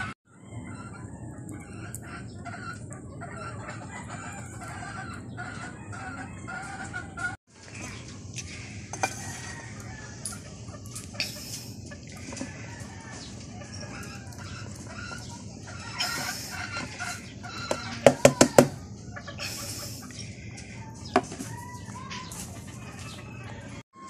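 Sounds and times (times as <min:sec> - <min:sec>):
chickens clucking: 0:00.0 - 0:24.0
rooster crowing: 0:08.8 - 0:10.4, 0:12.3 - 0:14.3.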